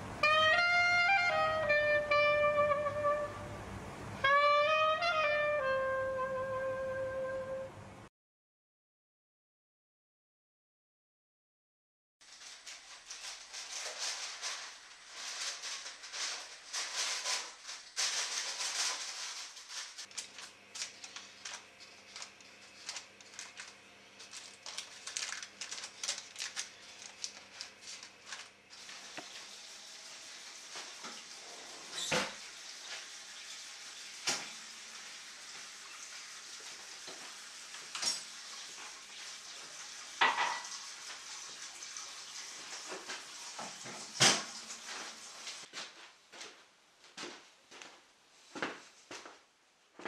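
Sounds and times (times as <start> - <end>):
parchment paper crinkling: 12.2 - 29.5.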